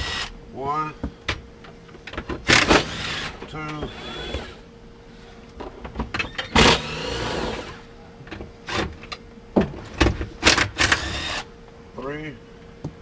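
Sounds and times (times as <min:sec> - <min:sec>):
cordless driver motor whine: 0:00.0 - 0:00.4, 0:02.5 - 0:04.7, 0:06.2 - 0:07.9, 0:10.7 - 0:11.5.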